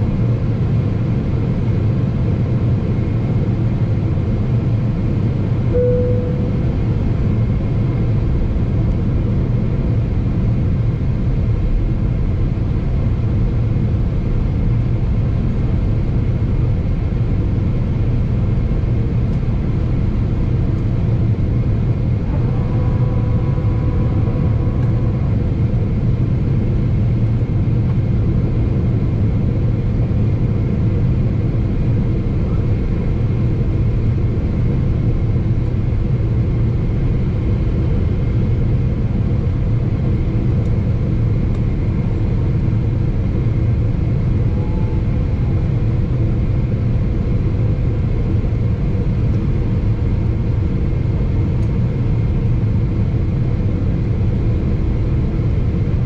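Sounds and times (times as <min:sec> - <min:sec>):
jet engine rumble: 0:00.0 - 0:56.0
airflow over fuselage: 0:19.0 - 0:34.7.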